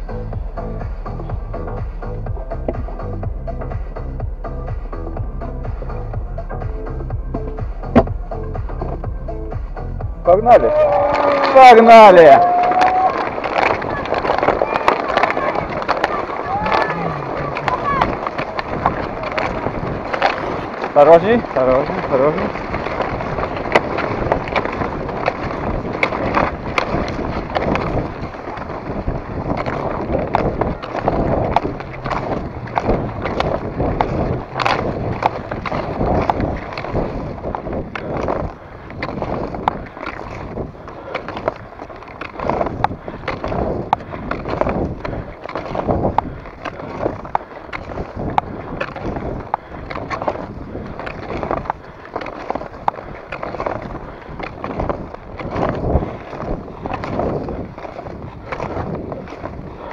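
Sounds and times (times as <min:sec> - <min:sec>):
skis swishing on snow: 0:10.5 - 0:59.9
ski pole tips clicking: 0:12.6 - 0:59.9.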